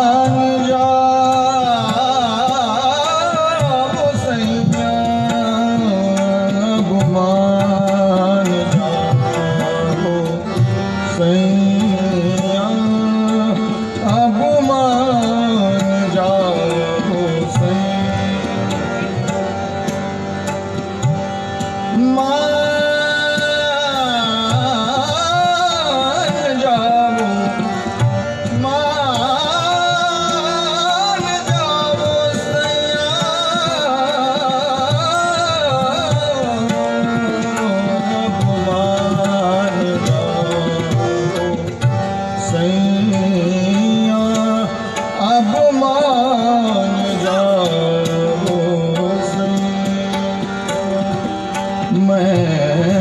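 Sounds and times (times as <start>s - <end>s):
harmonium: 0.0s - 53.0s
man singing: 0.0s - 53.0s
tabla playing: 0.0s - 53.0s.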